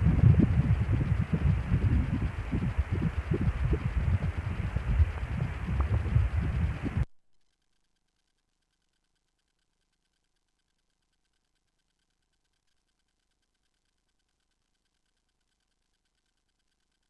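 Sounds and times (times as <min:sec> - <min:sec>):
doppler heartbeat whoosh: 0:00.0 - 0:07.1.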